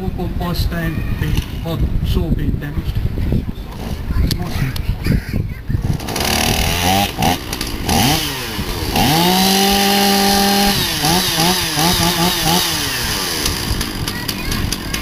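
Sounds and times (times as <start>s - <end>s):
chainsaw engine revving: 3.7s - 4.1s, 5.8s - 15.0s.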